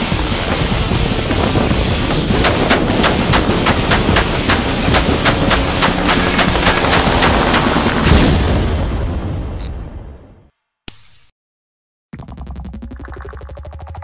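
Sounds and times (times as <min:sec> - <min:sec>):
rapid gunfire: 0:01.3 - 0:08.4
heavy blast: 0:08.0 - 0:10.1.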